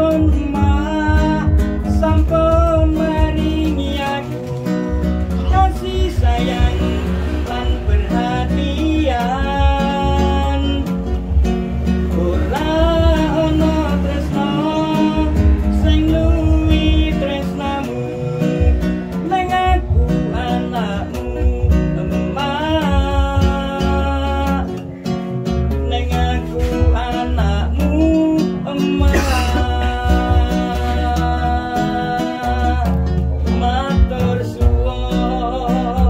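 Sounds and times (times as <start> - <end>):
acoustic guitar: 0.0 - 36.0
man singing: 0.0 - 36.0.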